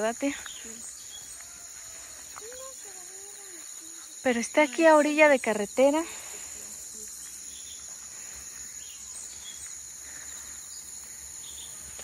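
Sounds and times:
faint chirps: 0.0s - 12.0s
high-pitched insect chorus: 0.0s - 12.0s.

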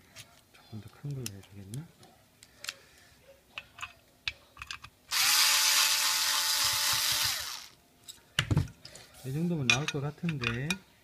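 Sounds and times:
tools clicking and tapping: 3.5s - 5.0s, 9.6s - 10.9s
electric screwdriver motor whine: 5.1s - 7.8s.

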